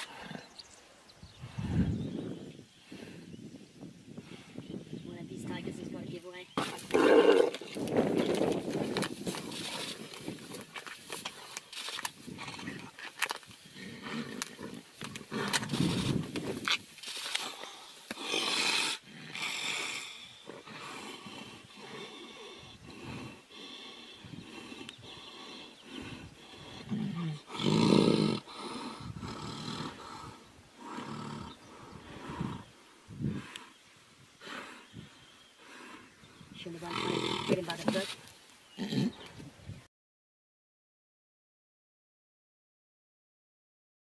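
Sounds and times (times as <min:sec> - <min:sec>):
tigers snarling and growling: 0:00.0 - 0:00.7, 0:06.5 - 0:39.4.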